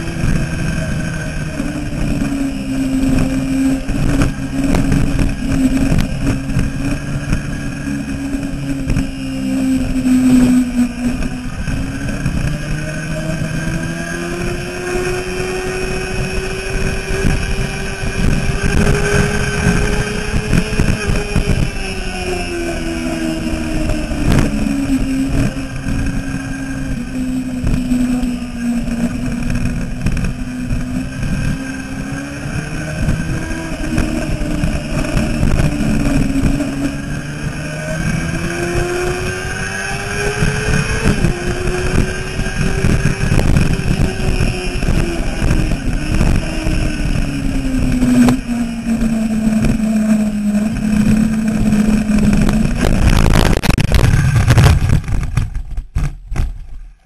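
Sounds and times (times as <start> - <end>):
motorcycle engine at high revs: 0.0 - 57.0
wind rushing over microphone: 0.0 - 57.0
loud wide crash noise: 52.8 - 56.9.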